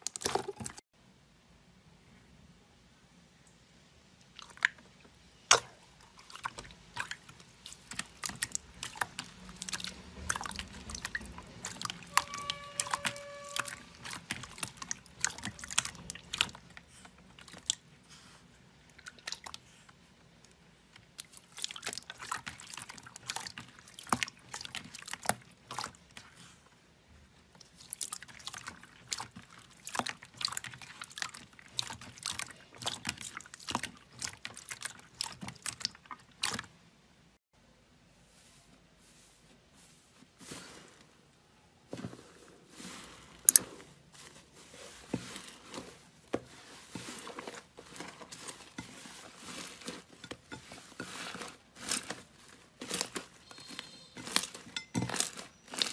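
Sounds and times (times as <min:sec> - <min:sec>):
slime squelching and popping: 0:04.2 - 0:17.9, 0:21.0 - 0:26.4, 0:27.6 - 0:36.7, 0:44.8 - 0:55.9
brief steady tone: 0:12.1 - 0:13.9, 0:53.5 - 0:54.2.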